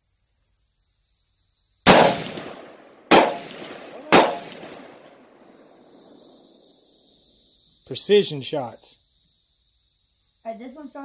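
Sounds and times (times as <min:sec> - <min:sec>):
rifle shots with echo: 0:01.9 - 0:06.3.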